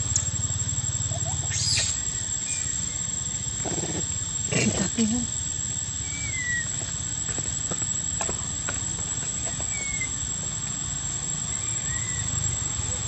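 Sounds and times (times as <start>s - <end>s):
high-pitched whine: 0.0s - 7.8s
short falling chirps: 1.3s - 3.5s.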